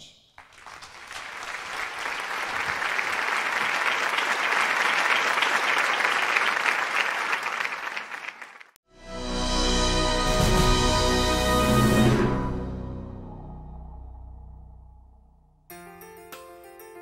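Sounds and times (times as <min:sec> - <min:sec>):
audience applauding: 0:00.4 - 0:08.8
music: 0:08.9 - 0:17.0.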